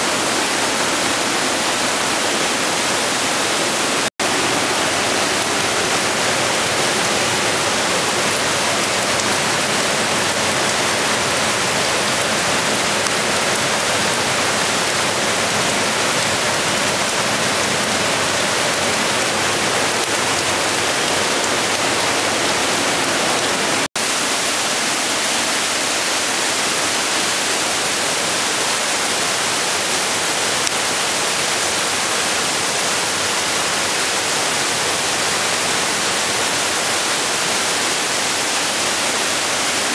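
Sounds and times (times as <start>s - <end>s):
mountain torrent rushing: 0.0s - 39.9s.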